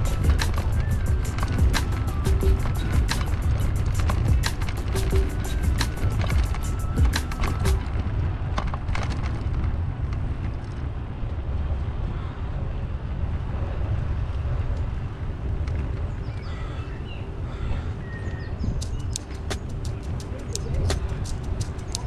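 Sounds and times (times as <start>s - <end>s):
sharp clicks: 0.0s - 7.9s, 18.8s - 22.0s
wind buffeting microphone: 0.0s - 22.0s.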